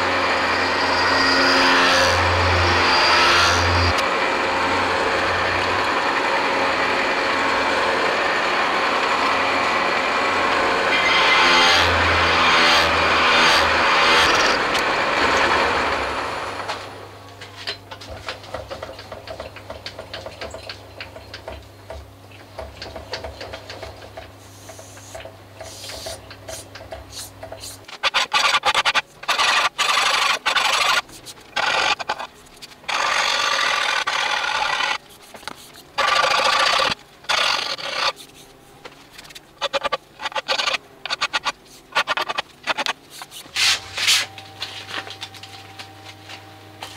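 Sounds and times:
milling machine cutting metal: 0.0s - 16.6s, 27.9s - 35.0s, 35.9s - 38.2s
milling machine humming: 0.0s - 17.0s
hand tool scraping metal: 25.7s - 44.4s.

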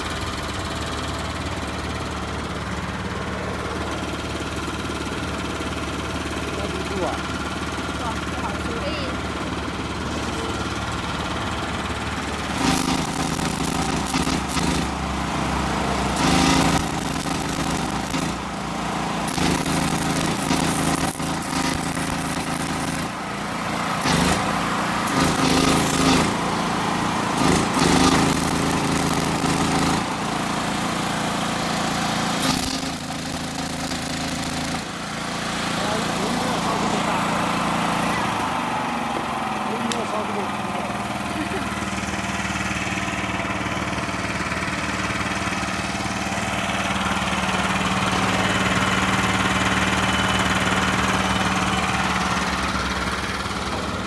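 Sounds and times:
generator engine running: 0.0s - 54.0s
crackling welding arc: 12.4s - 15.1s, 15.9s - 23.2s, 24.0s - 26.4s, 27.3s - 30.2s, 32.4s - 35.0s.

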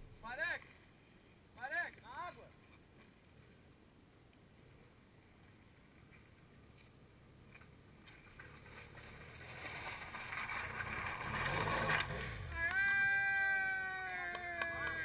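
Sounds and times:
water and mud splashing: 7.4s - 14.0s
motorcycle engine approaching: 8.4s - 13.9s.

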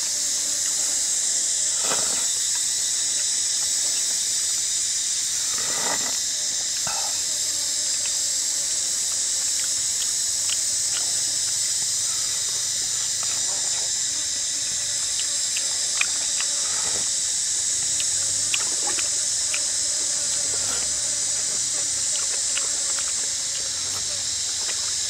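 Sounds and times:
steady high hiss: 0.0s - 25.0s
person slurping broth: 5.5s - 6.2s.

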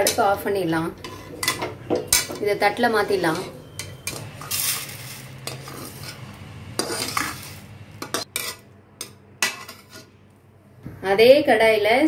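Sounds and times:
ladle clinking against pans: 1.0s - 2.6s
metal ladle scraping vermicelli: 1.0s - 10.2s.

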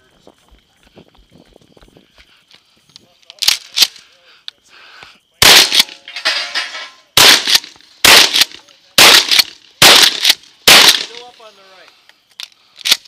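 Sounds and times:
shotgun firing: 5.4s - 6.0s, 7.2s - 11.2s.

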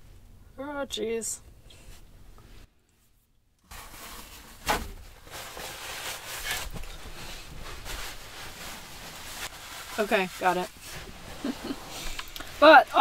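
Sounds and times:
paper towels rustling: 3.7s - 13.0s.

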